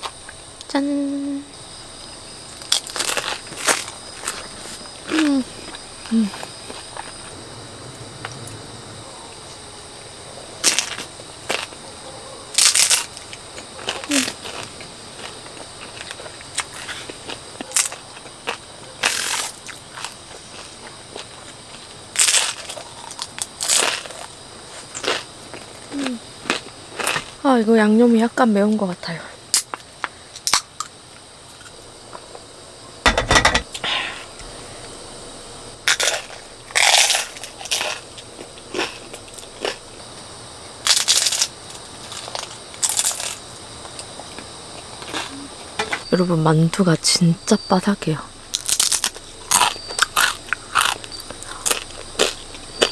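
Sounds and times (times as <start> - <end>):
crispy dumpling crunching: 2.6 - 5.4, 12.6 - 27.4, 35.9 - 39.8, 40.8 - 44.4, 48.5 - 52.9
tableware clattering: 33.1 - 33.7.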